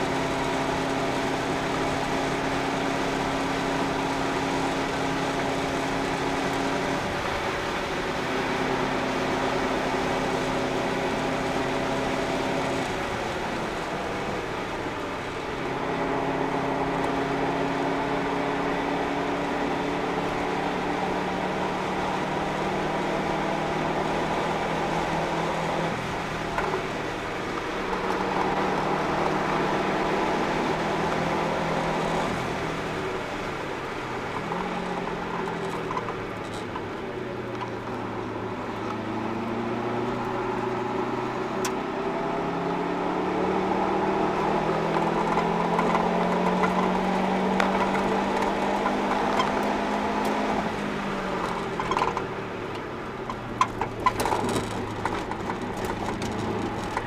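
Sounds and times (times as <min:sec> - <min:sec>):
car engine revving in cabin: 0:15.4 - 0:57.0.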